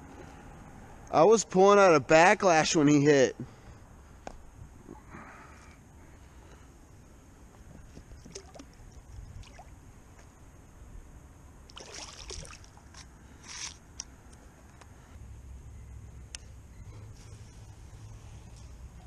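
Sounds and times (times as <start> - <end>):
rustling and handling in a kayak: 7.4 - 10.4.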